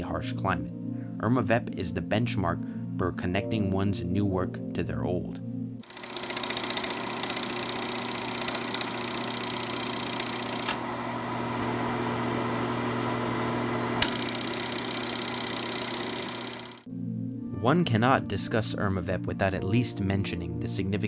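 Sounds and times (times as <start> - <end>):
film projector running: 5.8 - 16.9.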